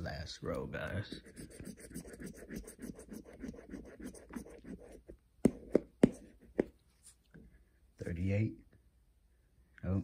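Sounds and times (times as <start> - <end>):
scratching lottery ticket: 1.1 - 5.1.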